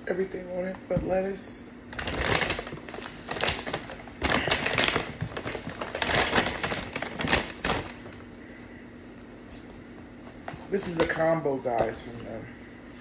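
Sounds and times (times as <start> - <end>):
food packaging crinkling: 1.9 - 8.2.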